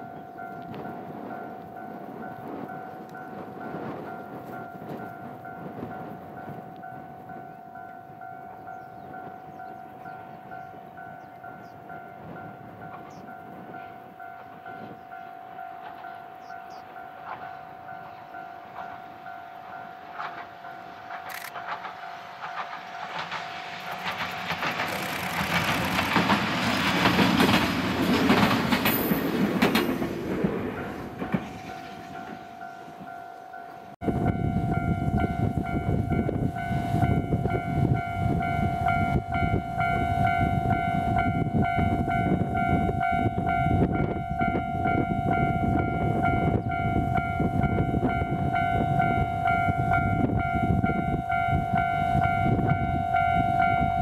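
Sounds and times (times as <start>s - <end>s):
level-crossing warning bell: 0.0s - 54.0s
train running past on rails: 0.0s - 54.0s.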